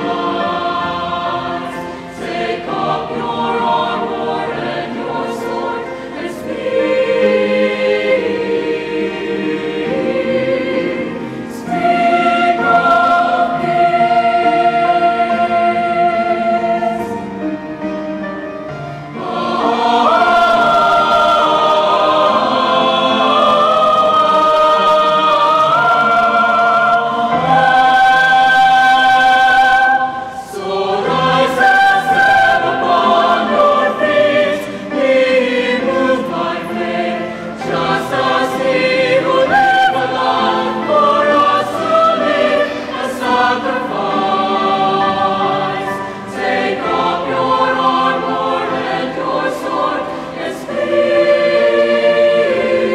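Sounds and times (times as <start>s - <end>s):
mixed choir singing in harmony: 0.0s - 52.9s.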